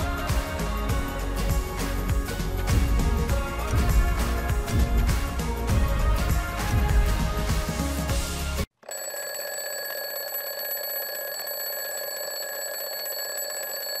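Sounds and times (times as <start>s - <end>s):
upbeat background music: 0.0s - 8.7s
alarm clock ringing: 8.8s - 14.0s.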